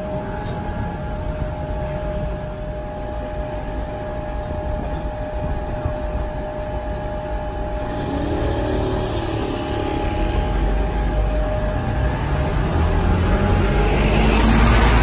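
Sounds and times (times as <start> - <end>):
bus engine rumble: 0.0 - 15.0
traffic noise: 0.0 - 15.0.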